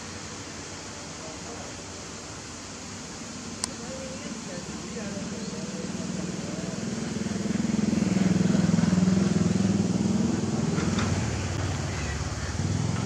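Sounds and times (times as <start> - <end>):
excavator diesel engine drone: 4.0 - 13.0.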